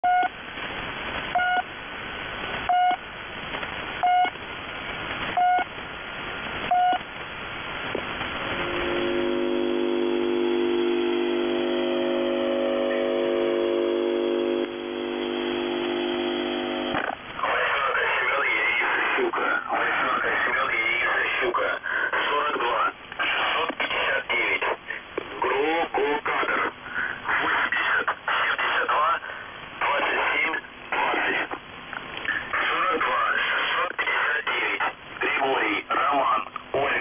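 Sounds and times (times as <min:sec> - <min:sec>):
radio static: 0:00.0 - 0:37.0
steady chord of tones: 0:08.4 - 0:17.0.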